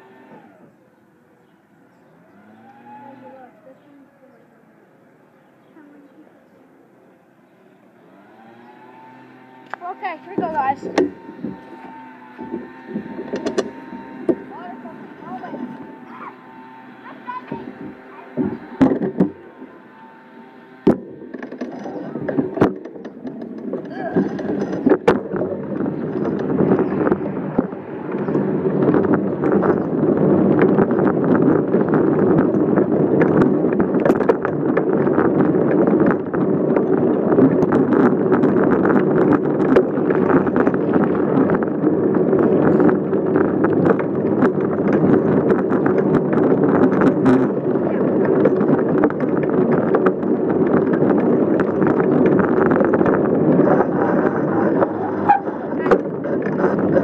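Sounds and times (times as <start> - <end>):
bicycle tyres rumbling: 0.0 - 57.0
wind buffeting microphone: 1.9 - 57.0
bicycle frame rattling: 7.8 - 57.0.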